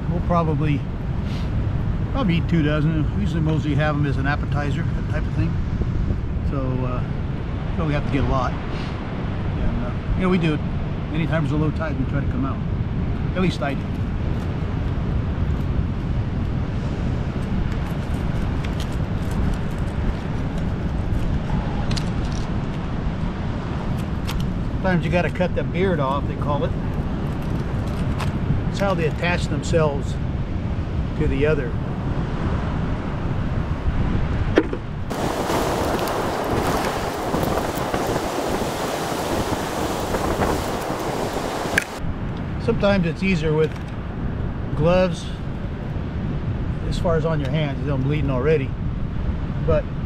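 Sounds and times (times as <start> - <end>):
surf at the shore: 0.0 - 50.0
wind: 0.0 - 50.0
surf washing: 35.1 - 42.0.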